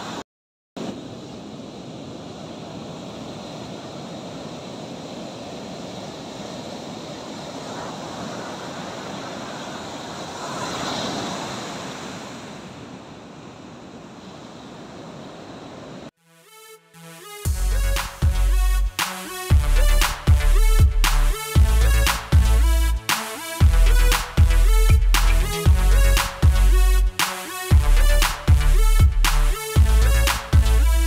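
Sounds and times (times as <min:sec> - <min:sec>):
surf waves washing on beach: 0:00.8 - 0:16.1.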